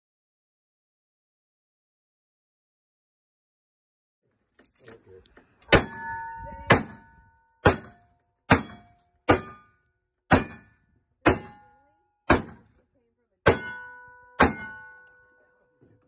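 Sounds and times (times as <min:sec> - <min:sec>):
steel targets ringing: 0:05.7 - 0:12.6, 0:13.4 - 0:15.9
gunshots: 0:12.3 - 0:12.7.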